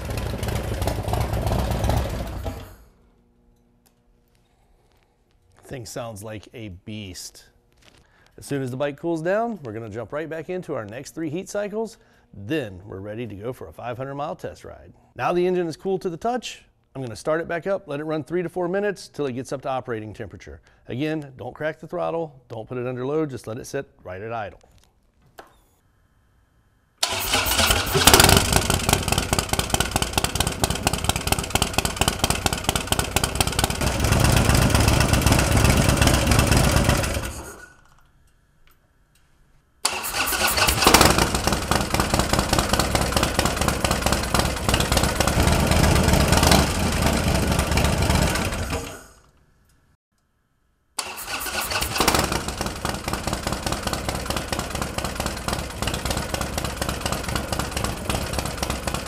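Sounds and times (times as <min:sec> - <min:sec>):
motorcycle engine idling: 0:00.0 - 0:02.8, 0:27.2 - 0:37.4, 0:40.9 - 0:48.8, 0:51.7 - 0:59.0.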